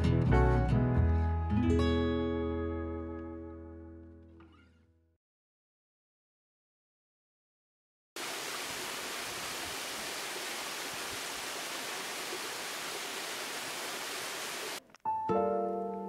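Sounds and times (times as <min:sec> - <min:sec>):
small waterfall rushing: 0:08.2 - 0:14.8.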